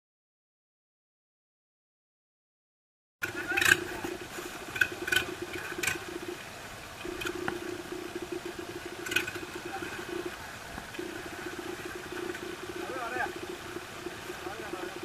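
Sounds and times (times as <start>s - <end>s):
boat engine humming: 3.2s - 15.0s.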